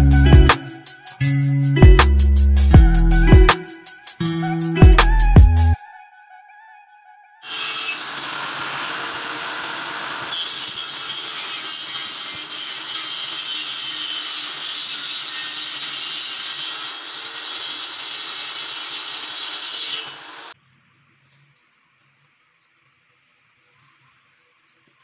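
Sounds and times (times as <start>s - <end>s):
table saw ripping wood: 7.4s - 20.6s.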